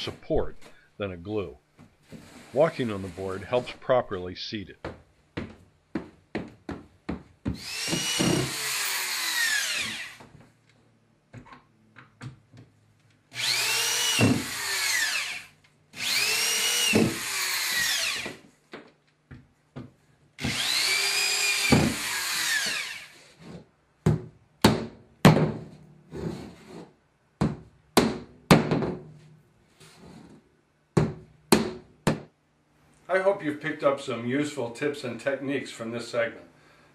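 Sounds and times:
drill driving screws: 0:07.5 - 0:10.3, 0:13.3 - 0:18.4, 0:20.4 - 0:23.4.

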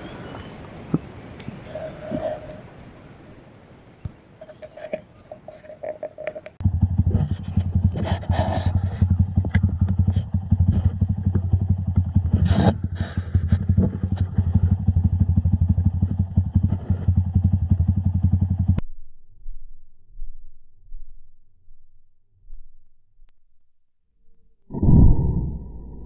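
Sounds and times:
motorcycle engine running: 0:06.6 - 0:18.8.

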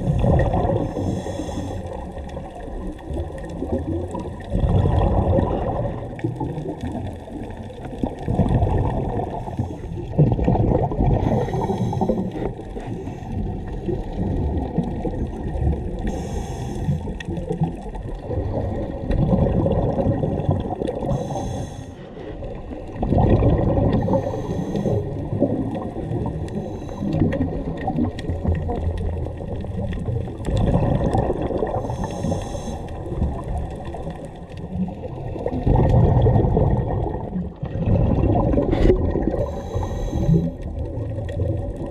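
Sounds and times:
exhaled air bubbling rumble: 0:00.0 - 0:41.9
regulator inhalation hiss: 0:01.0 - 0:01.8, 0:16.1 - 0:17.0, 0:21.1 - 0:22.0, 0:24.1 - 0:25.0, 0:31.8 - 0:32.9, 0:39.4 - 0:40.5.

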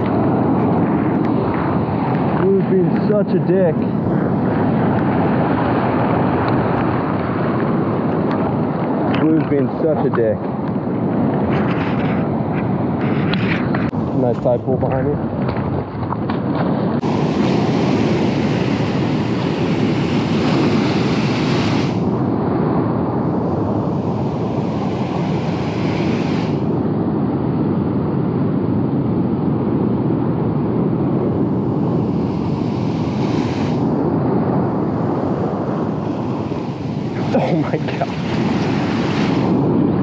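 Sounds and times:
wind rumbling on microphone: 0:00.0 - 0:40.0
ocean surf breaking: 0:16.4 - 0:26.9, 0:30.8 - 0:40.0.

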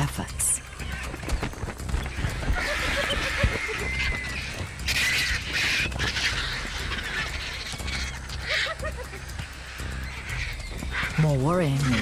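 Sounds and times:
vultures squawking and hissing: 0:00.6 - 0:12.0
hyena giggles: 0:08.4 - 0:09.2.

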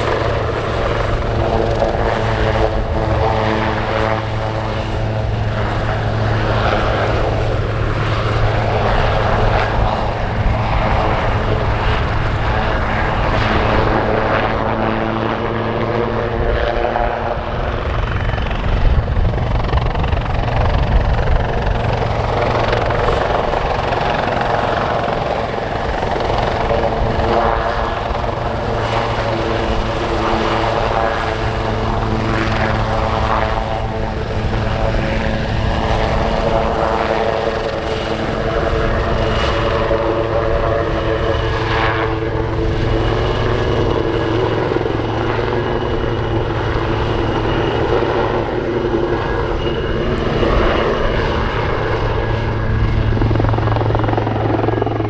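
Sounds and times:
helicopter rotor beat: 0:00.0 - 0:55.0
turboshaft engine whine: 0:00.0 - 0:55.0.

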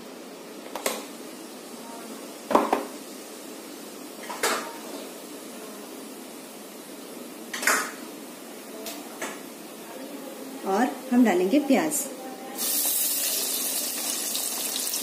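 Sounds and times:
seeds frying in hot oil: 0:12.6 - 0:15.0.

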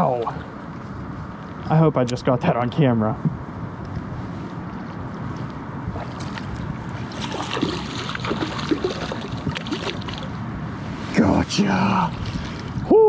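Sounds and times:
wind: 0:00.0 - 0:13.0
fish splashing in water: 0:07.0 - 0:10.4.

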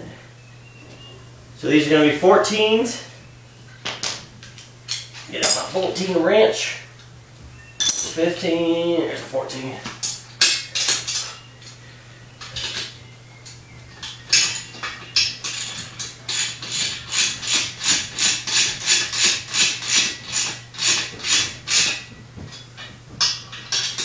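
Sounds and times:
metal hand tools clinking: 0:07.8 - 0:08.3.

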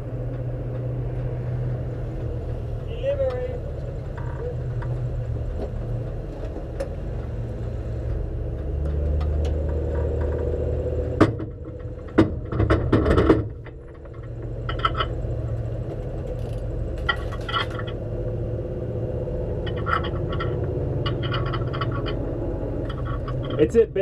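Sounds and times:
sharp knocks and rattles: 0:08.0 - 0:18.4, 0:19.4 - 0:24.0
race car engine idling: 0:19.4 - 0:24.0.

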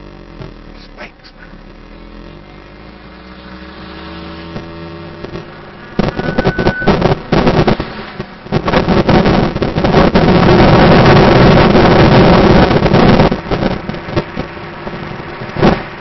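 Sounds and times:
car engine humming: 0:00.0 - 0:16.0
wind buffeting microphone: 0:04.2 - 0:16.0.

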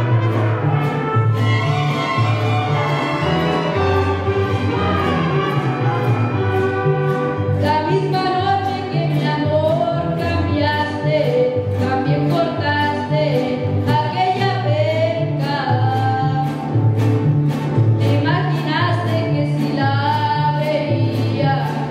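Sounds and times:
bass guitar line: 0:00.0 - 0:21.9
strummed guitar rhythm: 0:00.0 - 0:21.9
boy singing with vibrato: 0:07.6 - 0:16.7, 0:18.0 - 0:21.9.

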